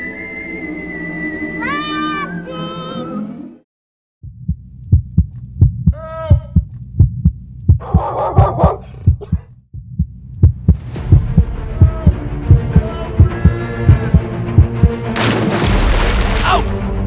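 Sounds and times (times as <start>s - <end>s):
heartbeat-like low thuds: 4.2s - 15.0s.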